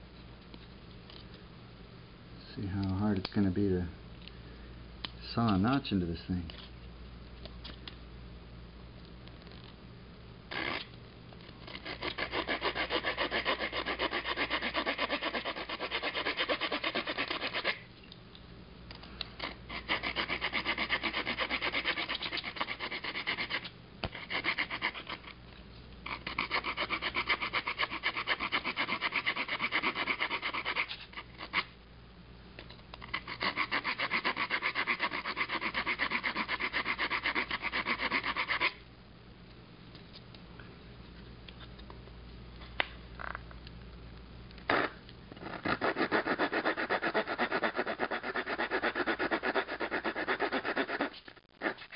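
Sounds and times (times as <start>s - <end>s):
saw blade rasping on wood: 11.8s - 17.8s, 19.7s - 25.3s, 26.1s - 31.6s, 33.1s - 38.8s, 45.6s - 51.9s.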